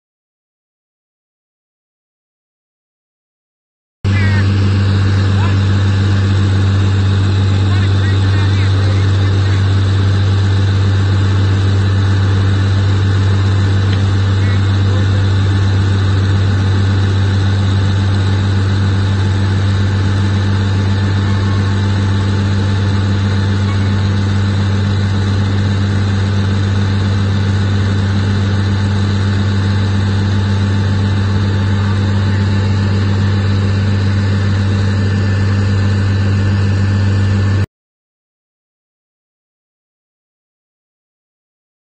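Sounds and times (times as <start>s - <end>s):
tractor engine droning: 4.1s - 37.6s.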